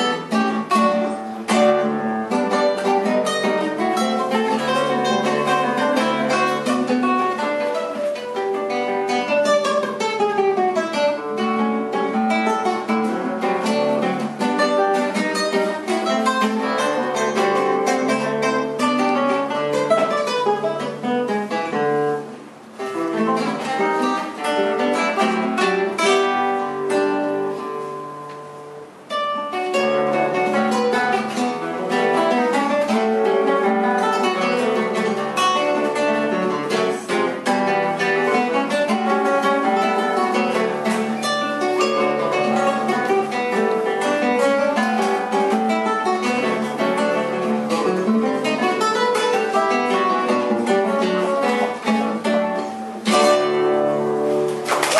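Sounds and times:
classical guitars playing a duet: 0.0s - 54.9s.

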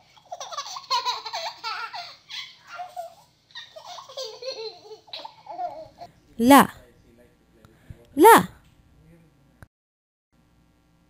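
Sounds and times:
baby laughing and babbling: 0.2s - 6.7s, 8.2s - 8.5s.

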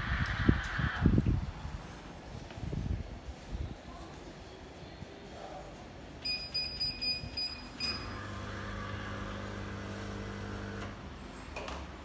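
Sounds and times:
espresso machine beeps: 6.2s - 8.2s
electric hum: 7.8s - 11.1s.

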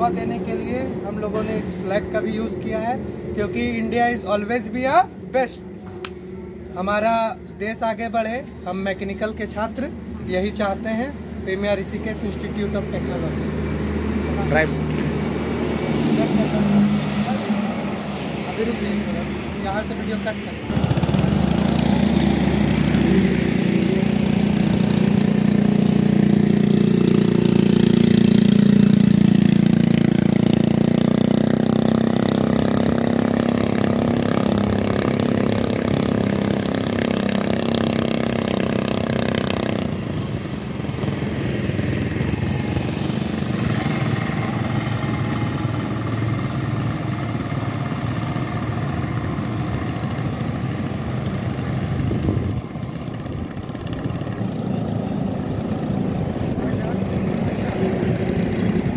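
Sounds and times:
go-kart engine running: 20.6s - 58.9s.

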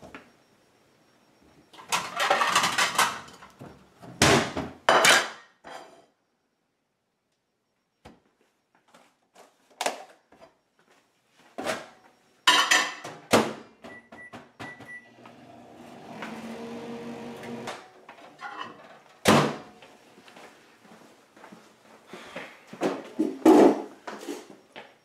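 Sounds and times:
microwave running hum: 13.0s - 19.7s
short keypad beeps: 13.8s - 15.1s.

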